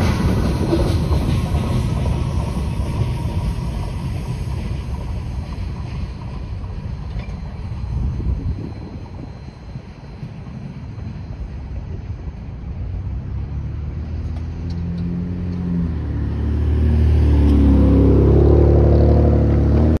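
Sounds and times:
car engine passing close: 0:13.1 - 0:20.0.

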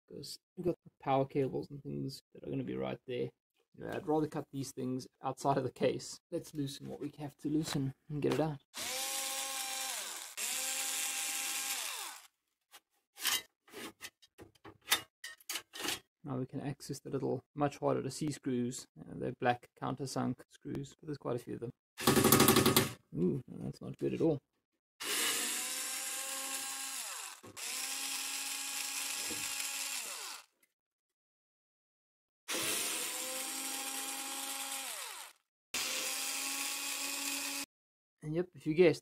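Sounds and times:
cordless screwdriver motor whirring: 0:08.8 - 0:12.3, 0:25.0 - 0:30.5, 0:32.5 - 0:37.7.

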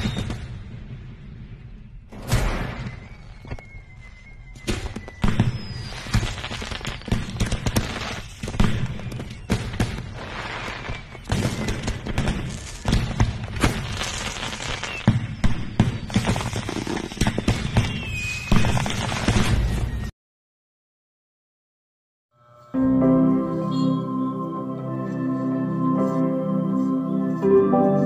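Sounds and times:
faint firework whistle: 0:00.0 - 0:00.7, 0:01.6 - 0:20.1
fireworks bangs and crackles: 0:00.0 - 0:20.1
background music: 0:22.4 - 0:28.0.

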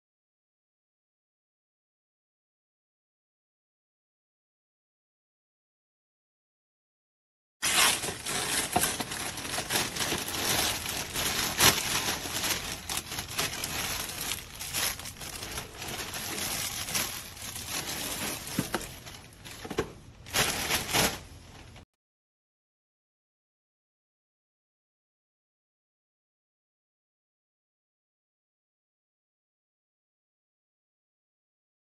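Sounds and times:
plastic bag crinkling: 0:07.6 - 0:21.6.

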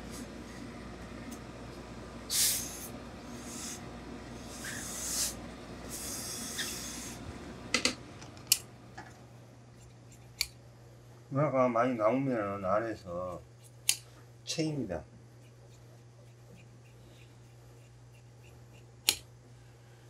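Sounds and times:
steam iron hissing: 0:02.3 - 0:03.8, 0:04.4 - 0:07.2.

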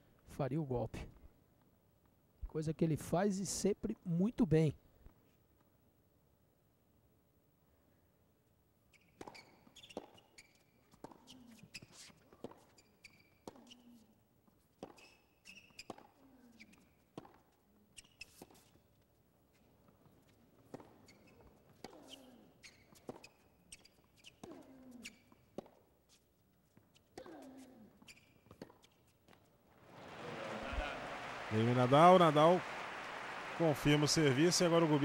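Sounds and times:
tennis ball bouncing on court: 0:13.4 - 0:13.8, 0:14.8 - 0:15.2, 0:15.8 - 0:16.1, 0:20.7 - 0:22.3, 0:25.5 - 0:25.8.

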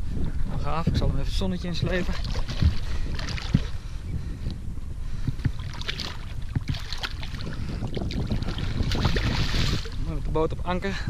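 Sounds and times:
wind on microphone: 0:00.0 - 0:11.0
fish splashing in water: 0:05.6 - 0:10.0.

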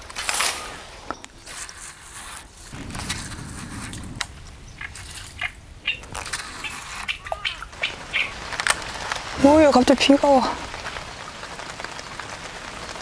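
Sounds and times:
faint outdoor ambience: 0:00.0 - 0:13.0
short low rumble: 0:02.7 - 0:06.5.

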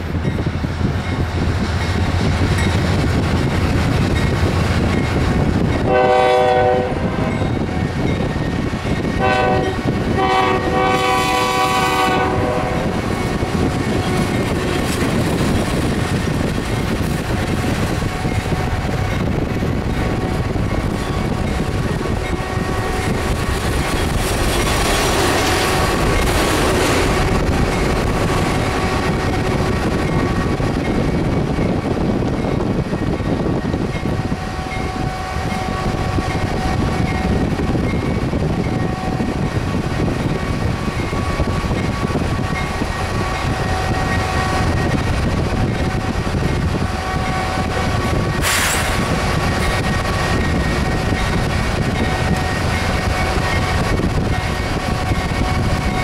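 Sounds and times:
locomotives rumbling past: 0:00.0 - 0:56.0
multi-note train horn: 0:05.9 - 0:07.4, 0:09.2 - 0:13.6.

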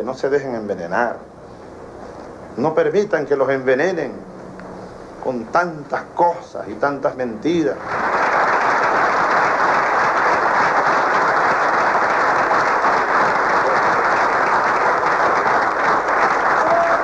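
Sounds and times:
audience applause: 0:07.8 - 0:17.0.

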